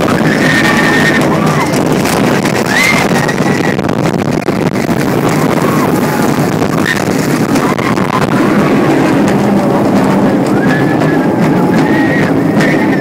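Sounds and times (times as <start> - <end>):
riders screaming: 0.0 - 3.9, 4.8 - 13.0
roller coaster rumbling on track: 0.0 - 13.0
wind on microphone: 0.0 - 13.0.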